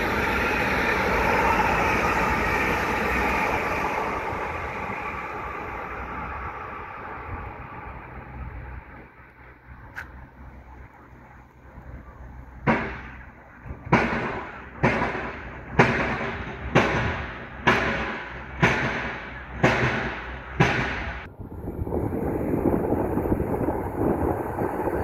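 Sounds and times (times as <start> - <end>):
low train rumble: 0.0 - 25.0.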